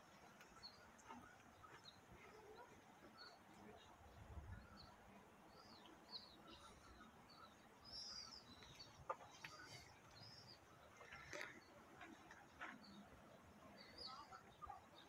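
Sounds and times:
faint bird chirps: 0:00.1 - 0:11.9.

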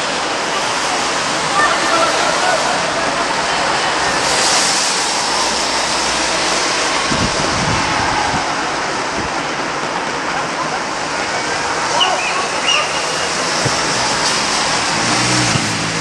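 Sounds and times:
wind hissing on microphone: 0:02.7 - 0:09.8.

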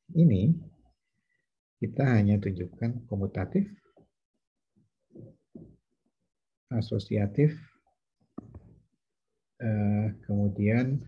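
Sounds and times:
man speaking: 0:00.1 - 0:00.7, 0:01.8 - 0:03.8, 0:06.7 - 0:07.6, 0:09.6 - 0:11.0.

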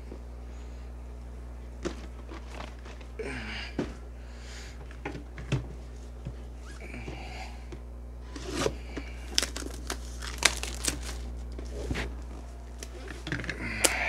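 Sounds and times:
plastic shrink wrap tearing: 0:09.3 - 0:12.0.

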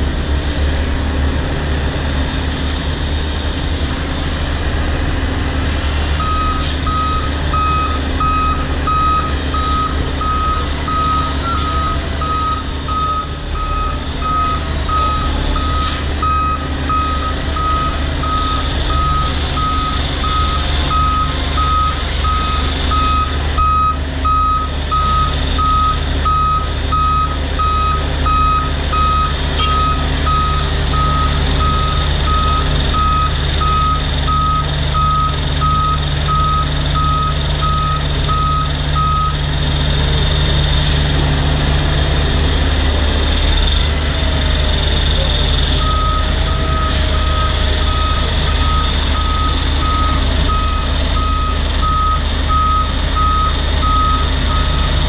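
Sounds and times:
low engine rumble: 0:00.0 - 0:55.0
truck reversing alarm beeping: 0:06.1 - 0:41.5, 0:42.4 - 0:55.0.

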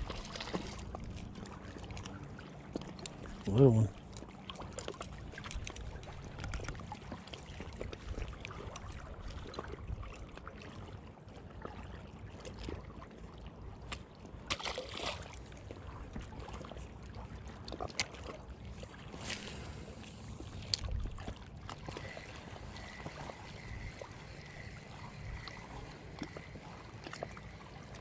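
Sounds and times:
wind and water: 0:00.0 - 0:28.0
fish splashing into water: 0:14.5 - 0:15.4.

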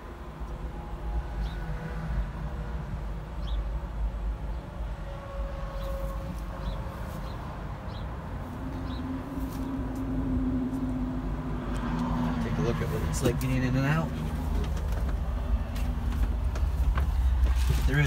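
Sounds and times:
road traffic rumble: 0:00.0 - 0:18.0
vehicle hum: 0:00.0 - 0:18.0.

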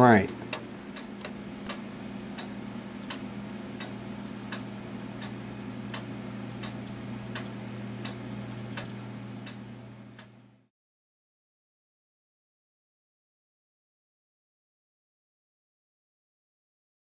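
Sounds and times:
steady low hum: 0:00.0 - 0:10.7
pendulum clock ticking: 0:00.2 - 0:10.4.

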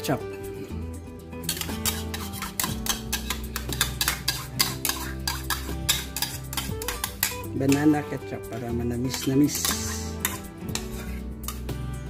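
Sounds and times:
background music: 0:00.0 - 0:12.0
metal spoon scraping a bowl: 0:01.4 - 0:11.8.

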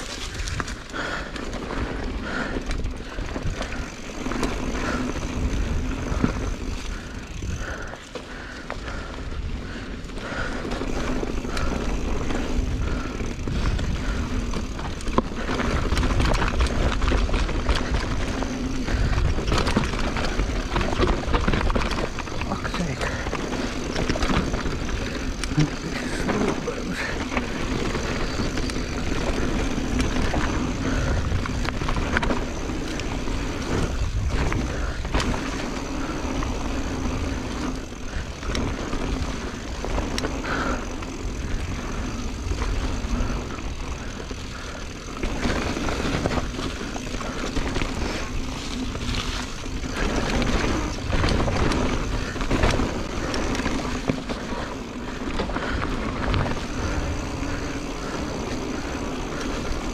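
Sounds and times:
bike tyre noise: 0:00.0 - 0:59.9
bike knocks and rattles: 0:09.7 - 0:59.9.

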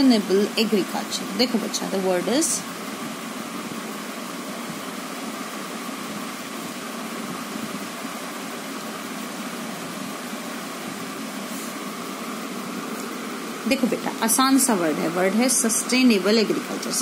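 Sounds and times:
room fan running: 0:00.0 - 0:17.0.

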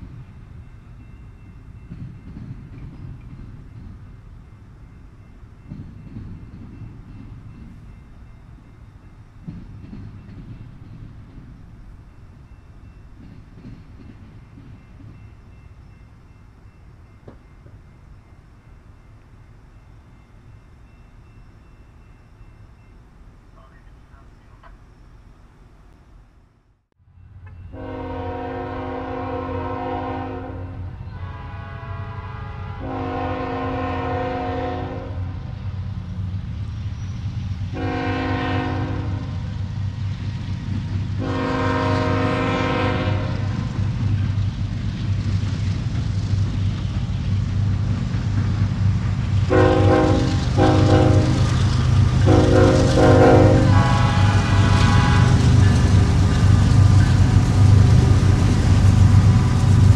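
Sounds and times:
train rumble: 0:00.0 - 0:59.9
train air horn blasts: 0:27.7 - 0:35.5, 0:37.7 - 0:39.5, 0:41.2 - 0:43.6, 0:49.5 - 0:51.5, 0:52.2 - 0:55.7.

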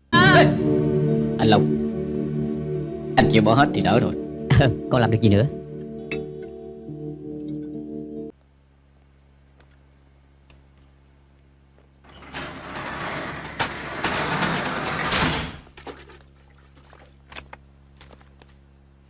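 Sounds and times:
metal roller shutter rattling: 0:12.1 - 0:15.8.

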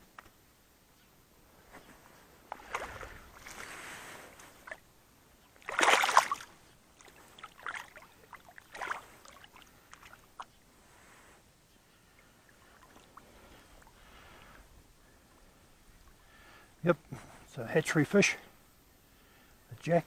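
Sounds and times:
fish thrashing and water splashing: 0:02.5 - 0:04.8, 0:05.6 - 0:10.5.

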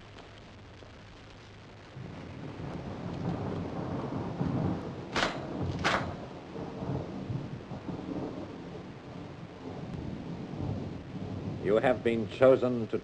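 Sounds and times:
sharp cracks: 0:05.1 - 0:06.5.

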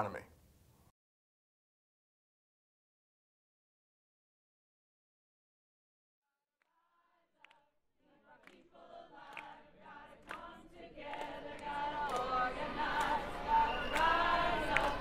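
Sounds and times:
group of voices singing: 0:06.7 - 0:15.0.

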